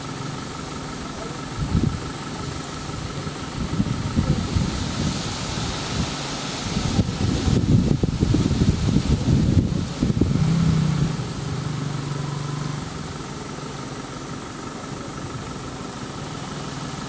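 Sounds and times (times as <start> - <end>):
vehicle engine idling: 0.0 - 17.0
wind buffeting microphone: 1.6 - 2.1, 3.1 - 11.5.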